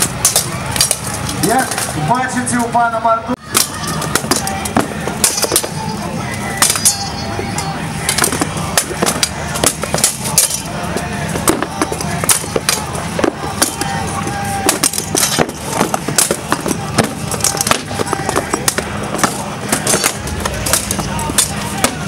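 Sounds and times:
swords clanking on armour: 0:14.6 - 0:22.0.

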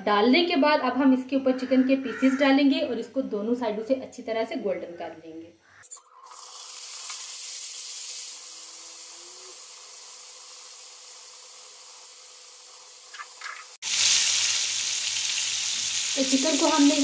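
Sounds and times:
chicken sizzling in hot oil: 0:06.2 - 0:17.0.

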